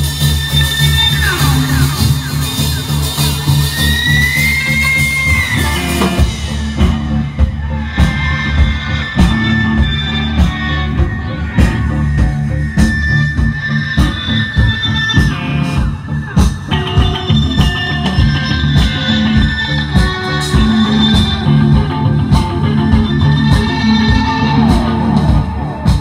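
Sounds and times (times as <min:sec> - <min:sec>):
live rock band playing: 0:00.0 - 0:26.0.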